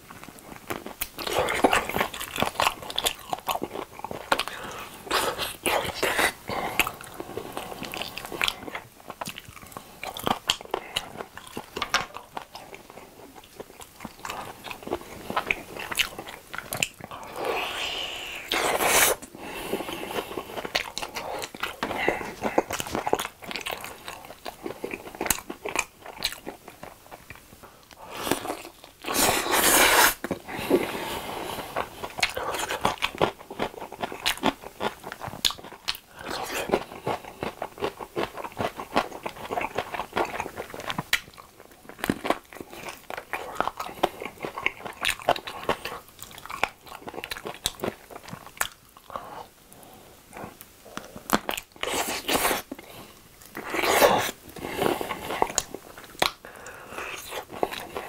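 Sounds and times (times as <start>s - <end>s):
chewing and biting fried chicken: 0.1s - 17.6s, 19.8s - 30.4s, 31.7s - 49.3s.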